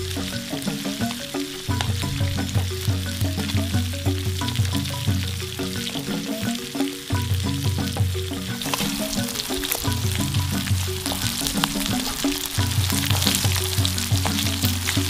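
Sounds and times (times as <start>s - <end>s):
background music with bass line: 0.0s - 15.0s
food deep-frying in hot oil: 0.1s - 15.0s.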